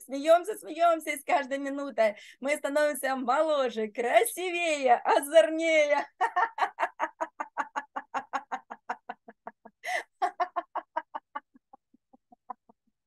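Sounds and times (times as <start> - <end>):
person laughing ha ha ha: 6.0 - 12.8
person breathing in: 9.8 - 10.2.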